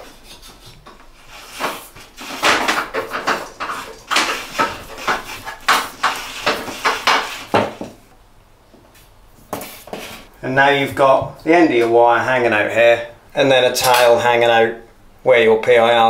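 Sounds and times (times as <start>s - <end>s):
cable scraping against ceiling hole: 0.0s - 7.9s
small knocks: 0.8s - 8.1s.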